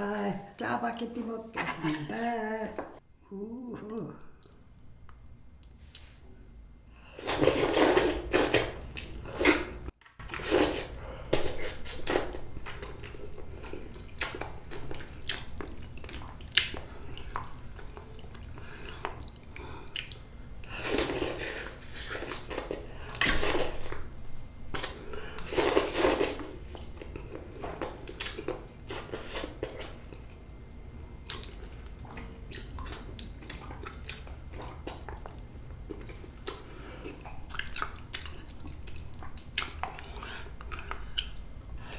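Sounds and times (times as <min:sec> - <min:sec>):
noodles being slurped: 0:07.2 - 0:12.4
chewing and lip-smacking: 0:11.3 - 0:24.0, 0:24.7 - 0:30.6, 0:31.2 - 0:41.5.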